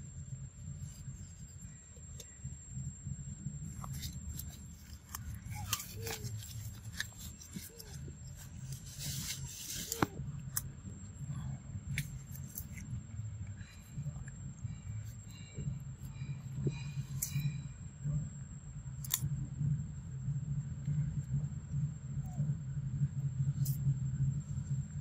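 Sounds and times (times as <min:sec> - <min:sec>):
leaves rustling and crackling: 0:03.8 - 0:10.3
sharp clicks and snaps: 0:19.0 - 0:19.3, 0:23.6 - 0:23.8.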